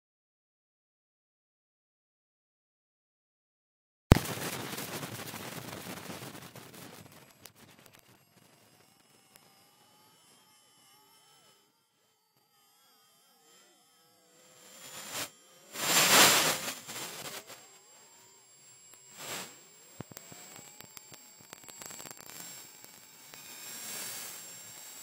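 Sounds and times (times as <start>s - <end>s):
scattered clicks: 4.1s - 9.5s, 18.9s - 25.0s
faint wavering tones: 6.6s - 25.0s
thin steady high tone: 7.1s - 25.0s
loud noisy swell: 14.8s - 18.0s.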